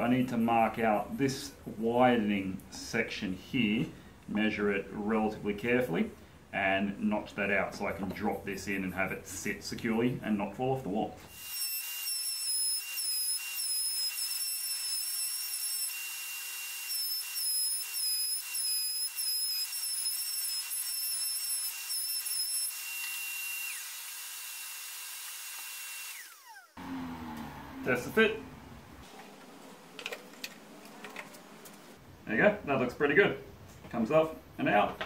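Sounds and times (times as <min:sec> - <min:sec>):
router winding down: 0:11.3 - 0:28.5
router whining: 0:11.3 - 0:29.5.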